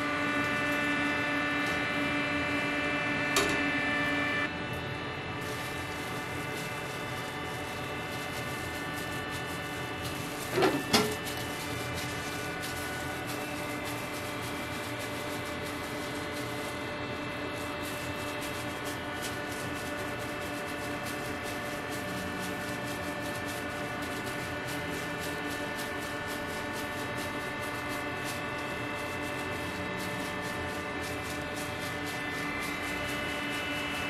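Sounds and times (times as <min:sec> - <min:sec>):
machine hum: 0:00.0 - 0:34.0
plastic glove crinkling: 0:04.6 - 0:34.0.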